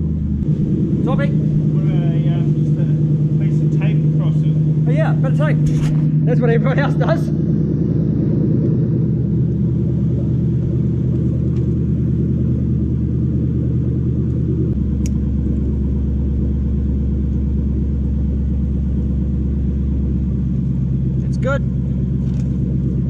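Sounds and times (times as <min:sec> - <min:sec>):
engine idling: 0:00.0 - 0:23.0.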